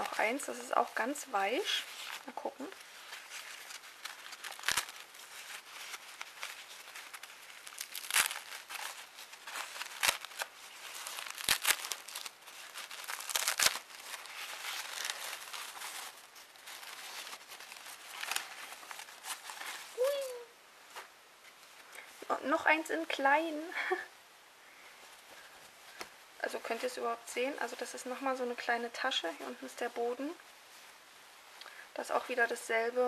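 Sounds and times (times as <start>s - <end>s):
gift wrapping rustling and crackling: 0.0s - 24.1s.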